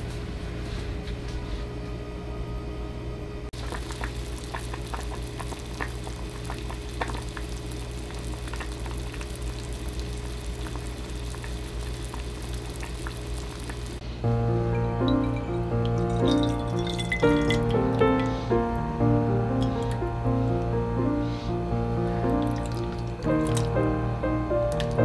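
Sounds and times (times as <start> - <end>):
low hum: 0.0 - 25.0
soup bubbling and popping: 3.6 - 14.0, 14.7 - 18.5, 19.5 - 20.1, 22.2 - 24.0, 24.6 - 25.0
gas burner hiss: 3.6 - 14.2.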